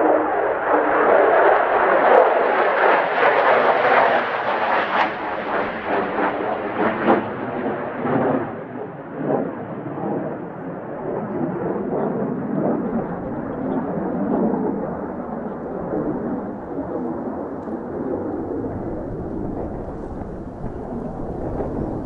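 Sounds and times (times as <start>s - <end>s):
jet engine roaring: 0.0s - 22.0s.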